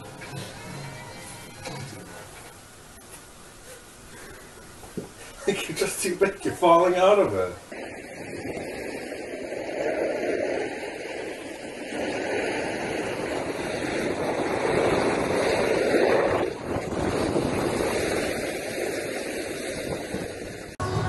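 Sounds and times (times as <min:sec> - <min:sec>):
skis sliding over packed snow: 0:04.9 - 0:20.8
wind rushing: 0:07.2 - 0:21.0.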